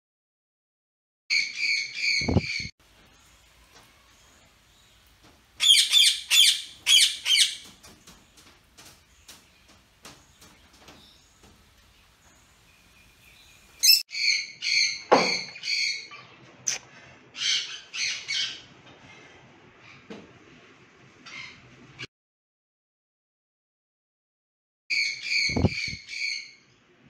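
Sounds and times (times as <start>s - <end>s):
soft bird chirps: 1.3s - 16.8s, 24.9s - 26.8s
parakeets squawking: 5.6s - 7.7s, 17.4s - 18.7s.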